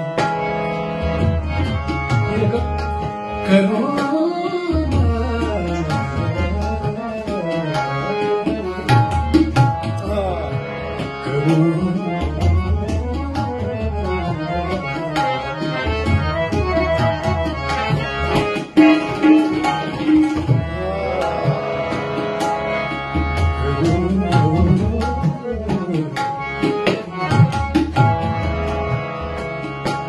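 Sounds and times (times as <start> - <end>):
harmonium held notes: 0.0 - 30.0
tabla strokes: 4.8 - 10.1, 12.2 - 30.0.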